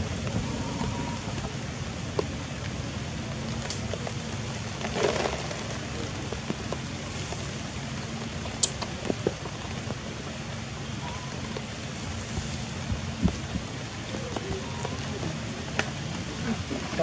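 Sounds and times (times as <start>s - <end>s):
steady low rumble: 0.0s - 17.0s
light clicks and ticks: 8.4s - 10.0s.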